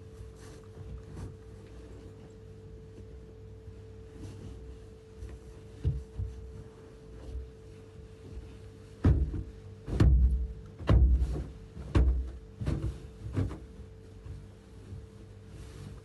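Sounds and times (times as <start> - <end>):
steady hum: 0.0 - 16.0
dull thumps: 5.8 - 7.4, 9.0 - 15.2.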